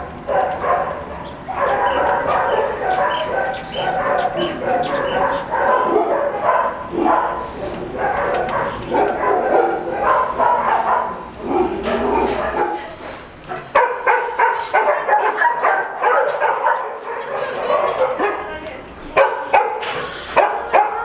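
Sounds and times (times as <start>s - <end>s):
puppies yipping and whining: 1.2s - 6.6s.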